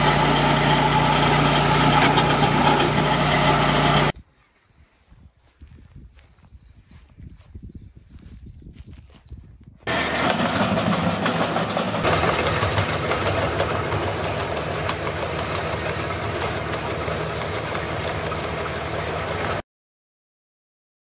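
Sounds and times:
tractor engine: 0.0 - 4.2, 9.9 - 19.6
wood chipper cutting branches: 0.0 - 4.2, 9.9 - 19.6.

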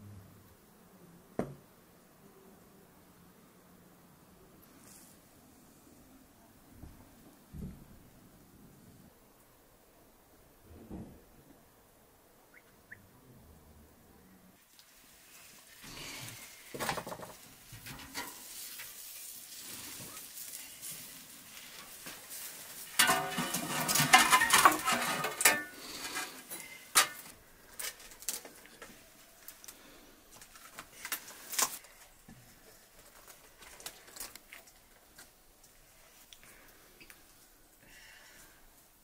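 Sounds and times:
metal pan and trays clattering: 16.8 - 19.0, 22.8 - 27.3.

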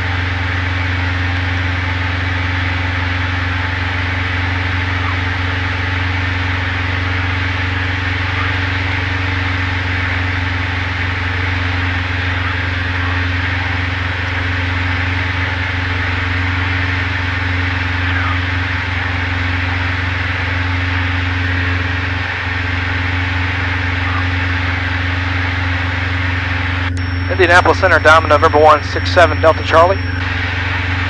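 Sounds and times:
propeller plane engine droning: 0.0 - 31.0.

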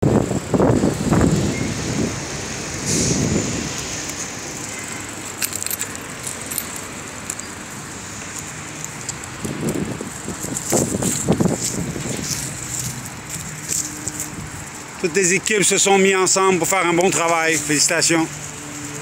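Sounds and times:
city street traffic hum: 0.0 - 19.0.

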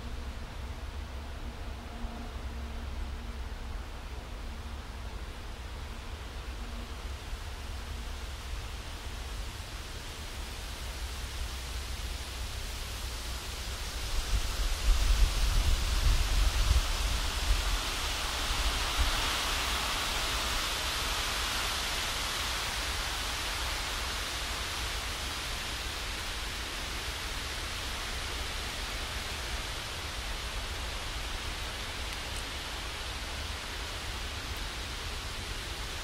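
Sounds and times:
wind rustling leaves: 0.0 - 36.0
wind buffeting microphone: 14.2 - 19.2.

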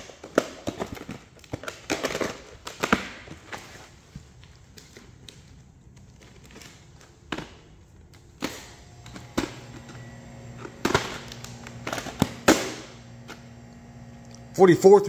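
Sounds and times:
plastic tape cases clacking: 0.0 - 3.7.

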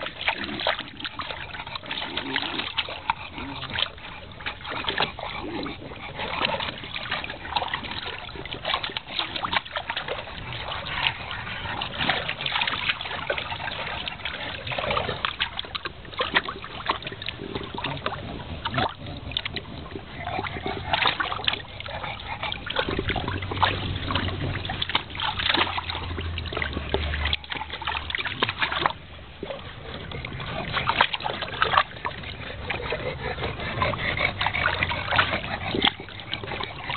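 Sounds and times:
puppies splashing in shallow water: 0.0 - 36.9.

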